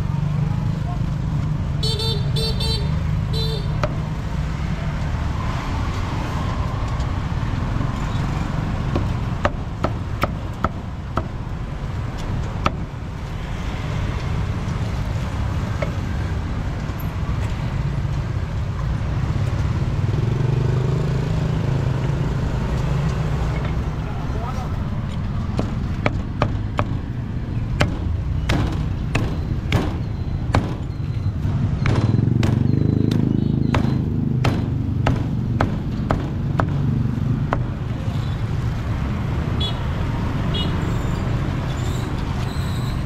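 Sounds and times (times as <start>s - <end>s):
street traffic rumble: 0.0s - 43.0s
vehicle horn beeps: 1.8s - 3.8s
cleaver striking chopping block: 33.7s - 36.9s.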